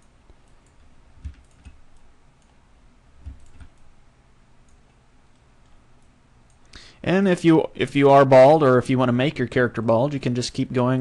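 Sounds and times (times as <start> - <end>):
computer mouse clicks: 0.0 - 2.6, 3.2 - 3.9, 4.6 - 6.8.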